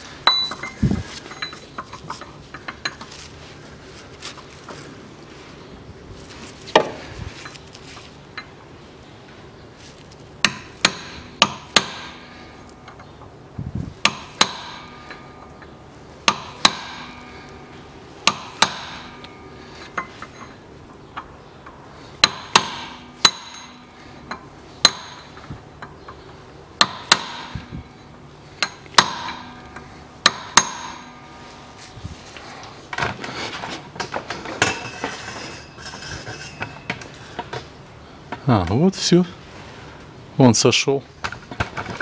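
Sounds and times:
scraping rattling clatter: 0:32.9 - 0:37.7.

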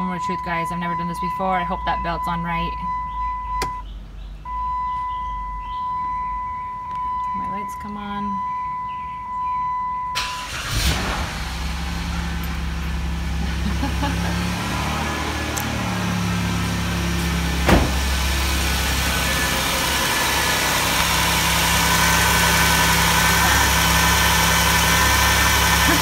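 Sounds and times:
car engine idling: 0:00.0 - 0:26.0
sharp knock: 0:17.6 - 0:18.1.

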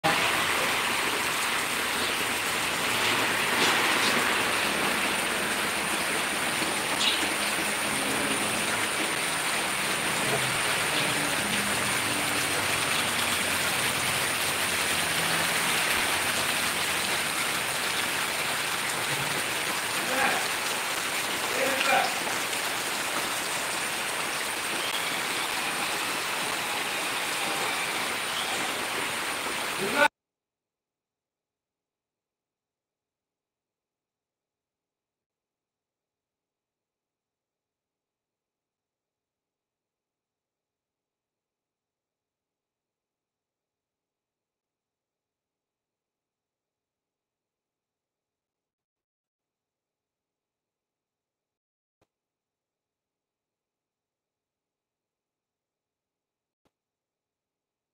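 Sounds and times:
heavy rain hiss: 0:00.1 - 0:30.1.

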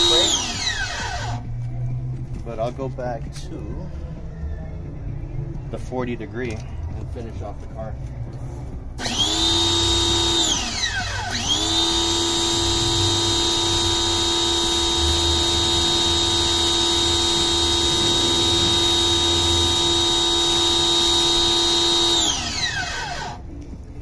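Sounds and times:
pressure washer motor whining: 0:00.0 - 0:01.5, 0:09.0 - 0:23.5.

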